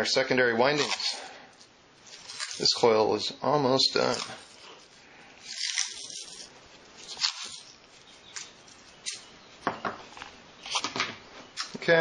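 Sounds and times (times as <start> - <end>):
hands rustling and scraping coil: 0.6 - 3.2, 3.8 - 9.3.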